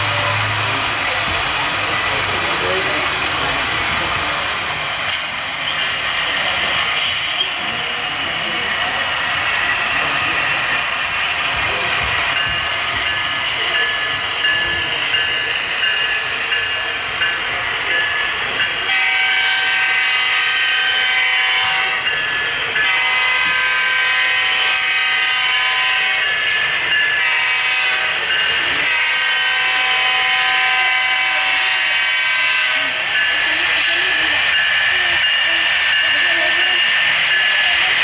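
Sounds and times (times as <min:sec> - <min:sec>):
locomotive bell ringing: 0:00.0 - 0:04.4, 0:05.0 - 0:38.0
multi-chime air horn blasts: 0:22.8 - 0:26.2, 0:28.9 - 0:32.8.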